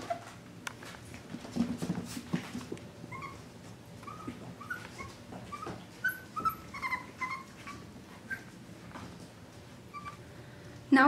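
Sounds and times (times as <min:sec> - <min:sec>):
puppies whimpering: 0:03.1 - 0:08.6, 0:09.9 - 0:10.2.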